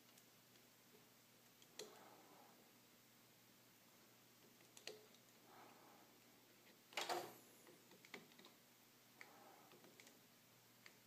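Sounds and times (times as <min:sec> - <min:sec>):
small clicks and ticks: 0:00.0 - 0:00.7, 0:04.5 - 0:05.4.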